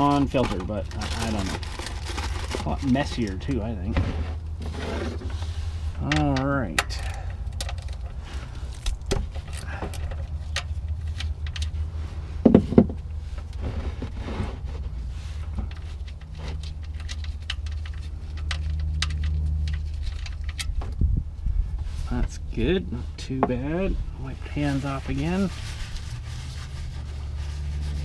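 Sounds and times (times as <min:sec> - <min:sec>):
hands handling small parts: 0:06.0 - 0:13.6, 0:15.3 - 0:21.0.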